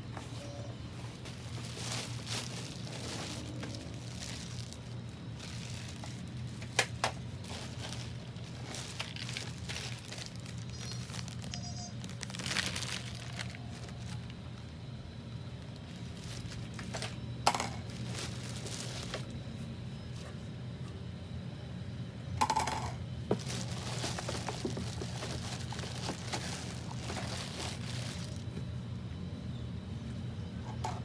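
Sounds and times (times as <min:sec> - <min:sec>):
steady low hum: 0:00.0 - 0:31.0
plastic wrapping crinkling: 0:00.4 - 0:14.7, 0:15.6 - 0:19.4, 0:23.2 - 0:28.6.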